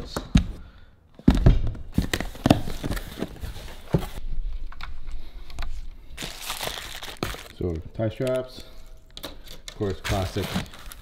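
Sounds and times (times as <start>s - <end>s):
packing rustling: 6.2s - 7.6s, 9.8s - 11.0s.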